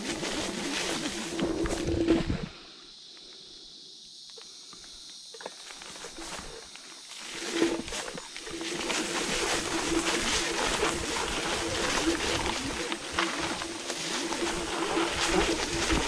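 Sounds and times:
tyres rolling on rough ground: 7.2s - 16.0s
electric scooter motor whine: 7.3s - 16.0s.

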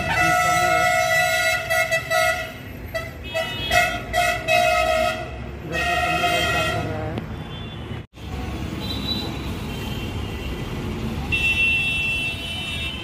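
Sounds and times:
vehicle horn honking: 0.0s - 8.0s, 11.3s - 13.0s
busy traffic rumble: 0.0s - 13.0s.

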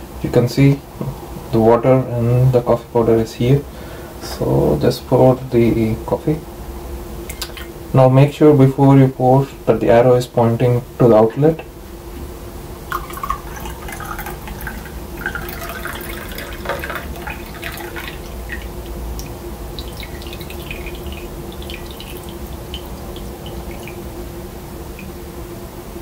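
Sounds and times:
coffee pouring into a mug: 12.9s - 24.2s.

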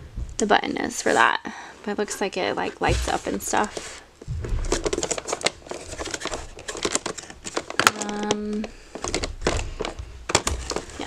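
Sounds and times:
packaging crinkling and clicking: 4.6s - 11.0s.

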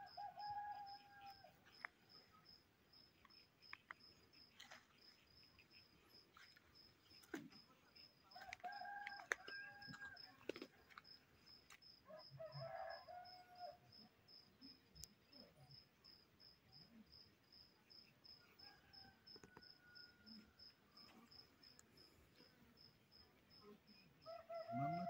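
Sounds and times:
faint rooster crow: 0.0s - 1.6s, 8.3s - 10.6s, 12.0s - 13.9s, 18.5s - 20.8s, 24.2s - 25.0s
insect chirping: 0.0s - 25.0s.

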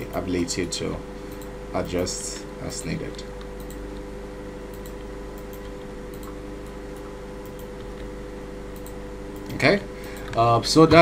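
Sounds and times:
steady hum: 0.0s - 11.0s
computer mouse clicks: 1.3s - 1.5s, 3.1s - 4.1s, 4.7s - 8.1s, 8.7s - 10.4s
keyboard clicks: 3.5s - 3.8s, 4.7s - 8.1s, 8.7s - 10.4s.

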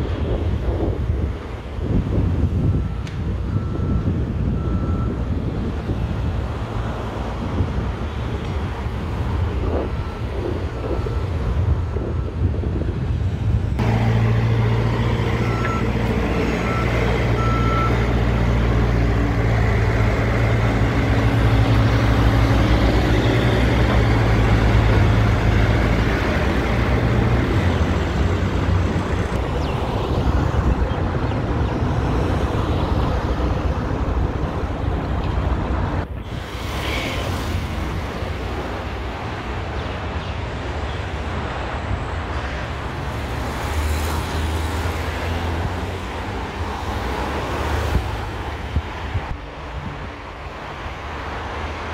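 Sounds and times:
construction vehicle engine: 0.0s - 40.2s
site and traffic rumble: 0.0s - 51.9s
reversing beeps: 2.7s - 5.2s, 9.9s - 11.4s, 15.4s - 16.0s, 16.6s - 18.0s.

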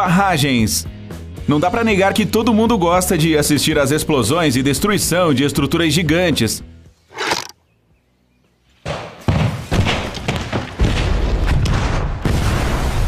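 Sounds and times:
sharp explosion booms: 10.8s - 13.0s.

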